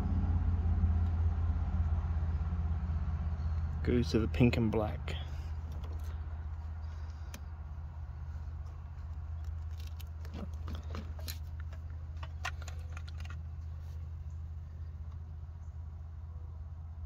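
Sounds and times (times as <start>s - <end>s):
low hum: 0.0s - 17.0s.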